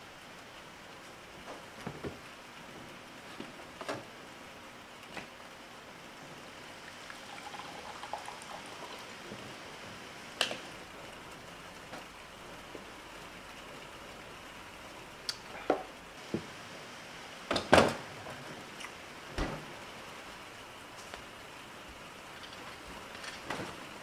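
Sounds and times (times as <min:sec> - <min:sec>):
steady hiss: 0:00.0 - 0:24.0
water trickling into plastic cup: 0:06.8 - 0:09.2
fridge door opening: 0:19.3 - 0:19.7.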